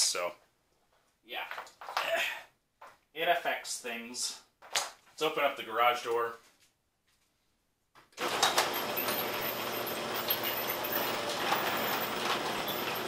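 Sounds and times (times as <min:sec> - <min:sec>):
door rollers clicking: 0:08.2 - 0:13.0
garage door rolling rattle: 0:08.2 - 0:13.0.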